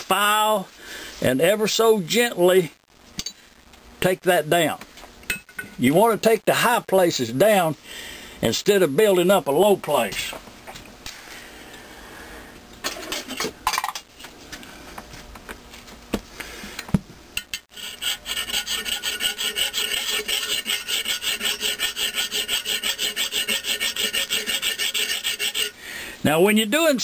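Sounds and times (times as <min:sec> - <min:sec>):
hand file rasping on metal: 0:17.6 - 0:25.8.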